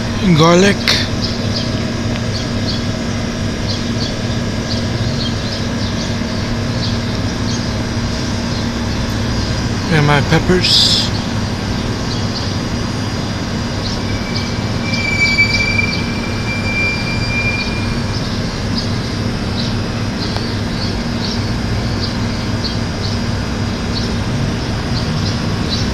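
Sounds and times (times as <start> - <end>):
low background hum and rumble: 0.0 - 25.9
thin high squeal: 13.8 - 18.4
faint short high chirps: 13.9 - 18.4.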